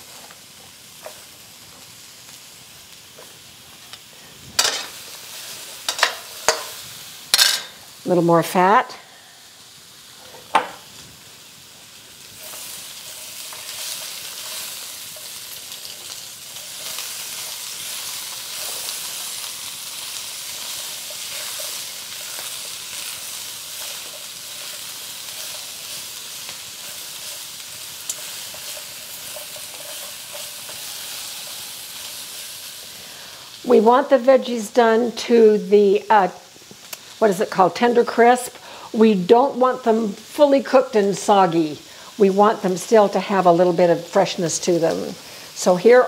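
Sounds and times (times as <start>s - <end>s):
vegetables sizzling in a wok: 0.0s - 46.0s
spatula stirring and scraping: 12.4s - 32.8s.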